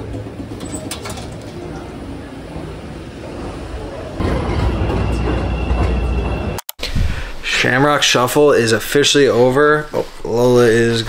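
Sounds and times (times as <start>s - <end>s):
train high whine: 0.0s - 7.5s
subway train rumble: 0.0s - 11.0s.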